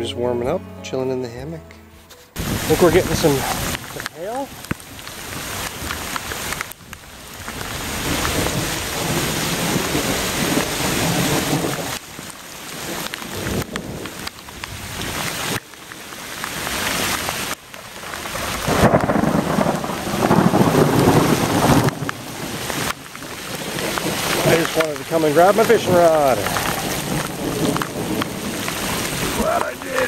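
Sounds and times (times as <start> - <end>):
low thunder rumbling: 2.4 - 4.7, 7.2 - 12.0, 18.2 - 30.0
heavy rain pouring: 2.4 - 30.0.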